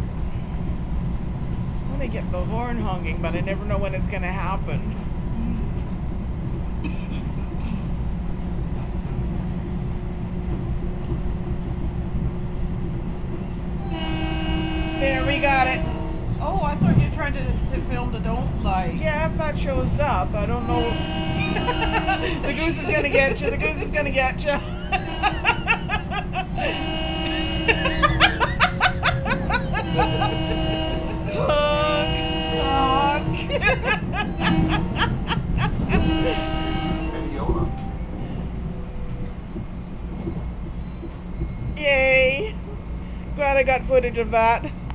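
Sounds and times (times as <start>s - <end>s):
train car rumbling: 0.0s - 44.9s
train horn chord: 13.8s - 16.5s, 20.6s - 23.2s, 24.6s - 38.1s
person giggling: 21.4s - 23.9s, 24.5s - 32.0s, 32.6s - 36.5s.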